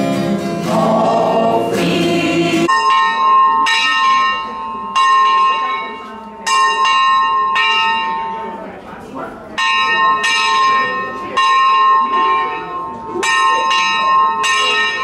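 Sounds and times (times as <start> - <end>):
small bell ringing: 2.7 - 8.7, 9.6 - 15.0.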